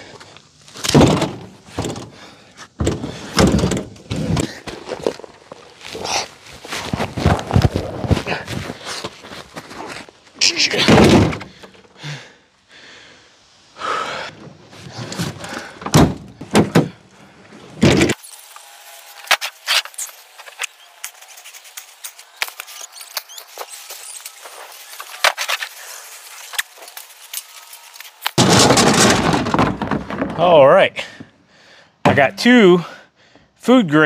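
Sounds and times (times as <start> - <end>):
logs thudding into truck bed: 0.8 - 2.2, 2.8 - 4.6, 10.8 - 11.6, 15.0 - 17.0, 28.3 - 30.6.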